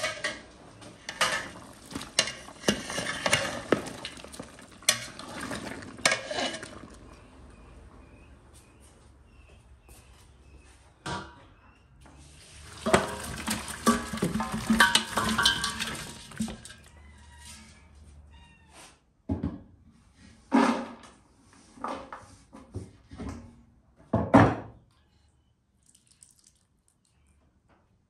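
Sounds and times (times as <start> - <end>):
utensils knocking on pot: 1.0 - 7.0, 12.6 - 16.9
broth splashing into basin: 12.5 - 16.9.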